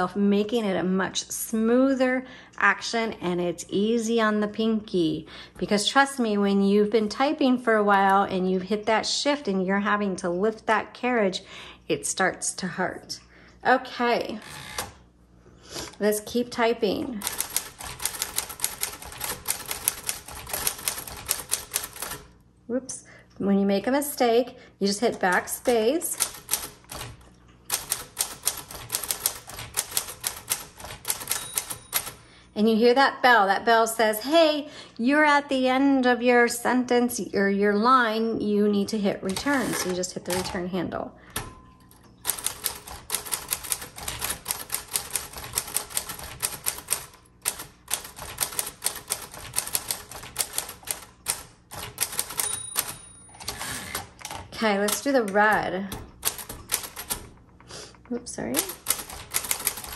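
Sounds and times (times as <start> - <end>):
typewriter keystrokes: 17.2 - 22.3, 25.1 - 32.2, 39.3 - 40.6, 42.2 - 57.4, 58.6 - 59.9
typewriter margin bell: 27.7 - 32.2, 42.2 - 54.0
typewriter margin bell ring: 31.0 - 32.2, 52.0 - 53.8.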